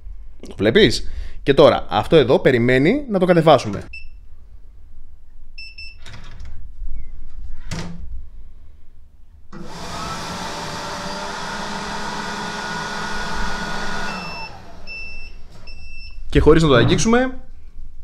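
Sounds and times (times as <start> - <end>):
trash can motor running: 9.6 - 15.7.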